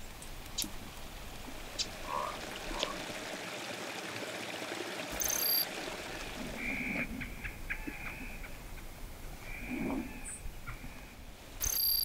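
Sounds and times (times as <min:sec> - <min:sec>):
water dripping from branches: 0:00.0 - 0:08.9
rain falling in forest: 0:00.0 - 0:12.0.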